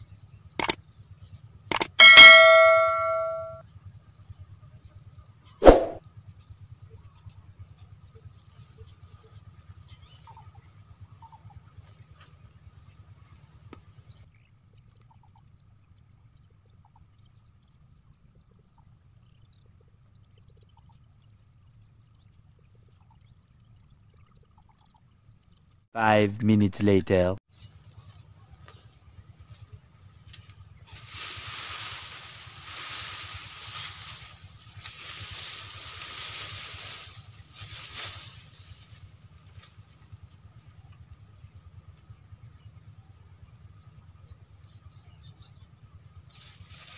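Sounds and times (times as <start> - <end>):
insects trilling: 0.0 - 2.8, 3.6 - 25.8, 27.6 - 46.9
thin high tone: 1.7 - 3.6
branches and grass rustling: 29.5 - 39.9.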